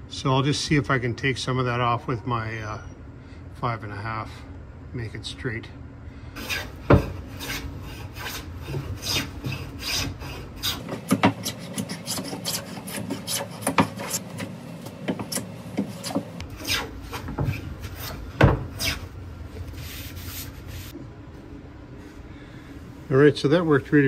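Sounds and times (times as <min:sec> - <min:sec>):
hand plane shaving wood: 0:06.4 - 0:14.6.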